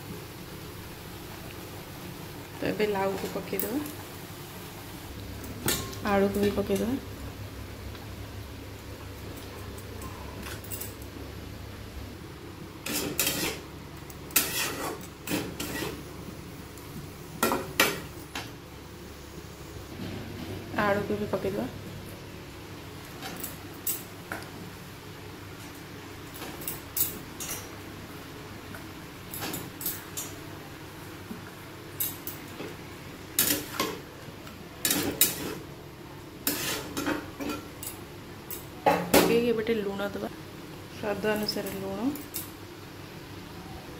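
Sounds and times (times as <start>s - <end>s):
metal spatula scraping a pan: 12.8s - 13.6s, 14.3s - 16.0s, 36.4s - 37.6s.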